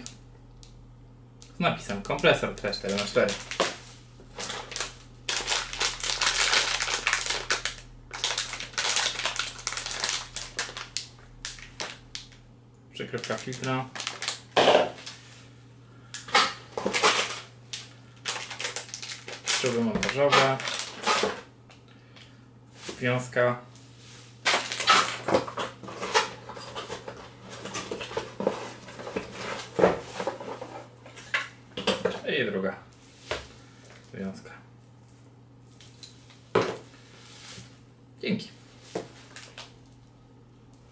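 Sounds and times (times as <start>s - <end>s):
plastic bag crinkling: 2.1s - 12.4s, 13.0s - 15.4s, 16.1s - 21.5s, 23.8s - 31.4s, 39.0s - 40.1s.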